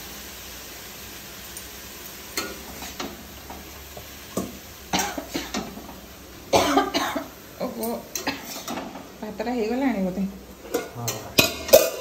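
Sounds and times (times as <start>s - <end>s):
food sizzling in a pan: 0.0s - 12.0s
spoon scraping a pan: 2.3s - 3.6s, 7.6s - 9.1s, 10.5s - 12.0s.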